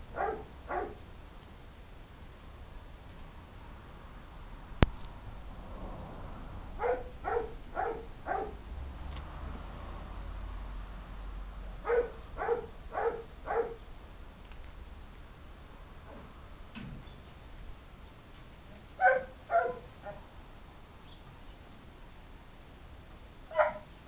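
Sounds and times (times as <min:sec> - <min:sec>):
dog barking: 0:00.2 - 0:01.0, 0:06.8 - 0:08.6, 0:11.8 - 0:13.8, 0:19.0 - 0:20.2, 0:23.5 - 0:23.9.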